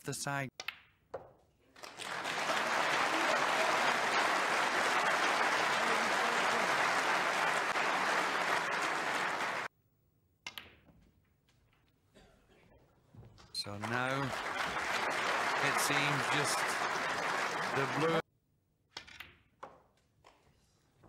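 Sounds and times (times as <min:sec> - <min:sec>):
audience applauding: 0:01.8 - 0:09.7, 0:13.6 - 0:18.2.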